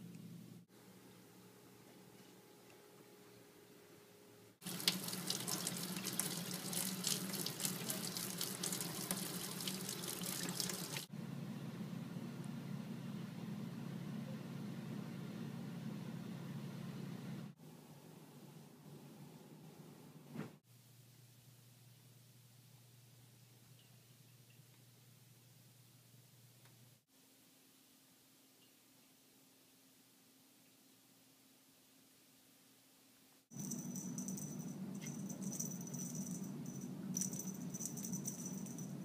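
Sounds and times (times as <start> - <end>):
cat toy rattle and clicks: 33.5 - 39.0
steady low hum: 33.5 - 39.0.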